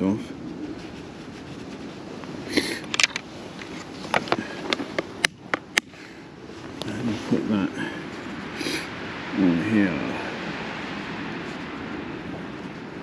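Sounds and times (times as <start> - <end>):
fishing tackle clicks and rattles: 2.8 - 5.8.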